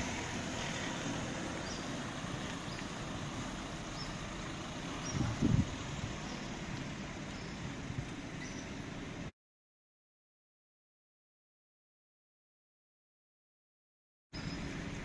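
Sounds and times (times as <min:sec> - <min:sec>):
rain hissing: 0:00.0 - 0:09.3, 0:14.4 - 0:15.0
tyres on wet road: 0:00.0 - 0:09.3, 0:14.4 - 0:15.0.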